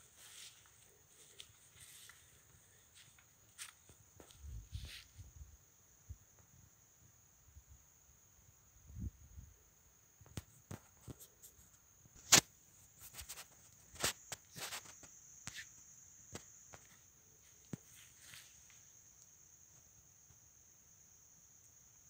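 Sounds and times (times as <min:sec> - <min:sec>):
footsteps on dry forest floor: 0:00.0 - 0:05.2, 0:16.8 - 0:18.8
high-pitched insect trill: 0:00.0 - 0:22.0.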